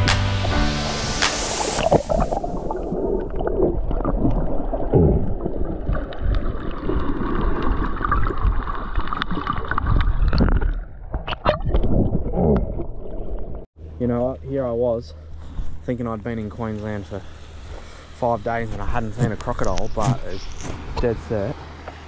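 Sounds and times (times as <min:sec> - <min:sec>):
water gurgling and bubbling: 0:01.6 - 0:13.7.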